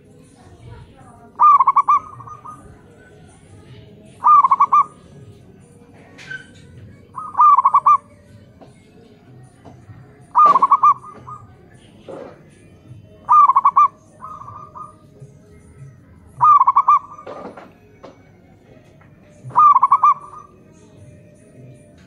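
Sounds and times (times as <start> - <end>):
dove cooing: 1.1 - 18.1, 19.2 - 22.0.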